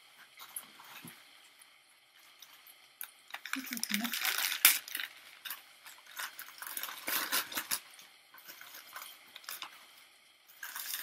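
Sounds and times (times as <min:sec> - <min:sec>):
newspaper crinkling and rustling: 0:03.5 - 0:07.8.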